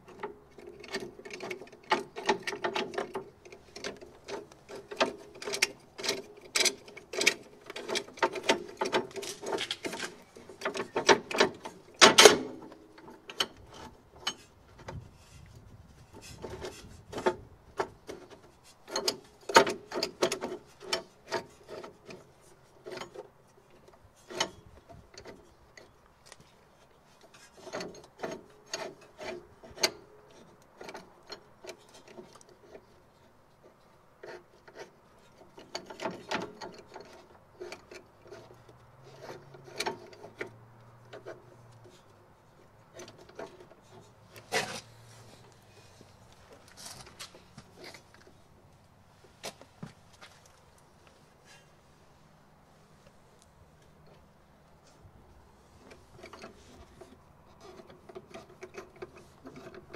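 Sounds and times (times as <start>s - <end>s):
metallic clicks and knocks: 0.0s - 15.0s, 16.1s - 26.5s, 33.6s - 42.2s, 42.8s - 44.8s, 55.8s - 59.9s.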